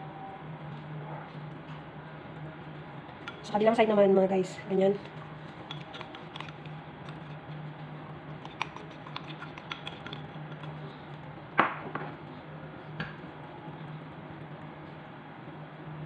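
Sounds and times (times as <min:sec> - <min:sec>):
steady low hum: 0:00.0 - 0:16.0
spoon tapping bowl and dish: 0:05.7 - 0:07.2, 0:08.5 - 0:10.8.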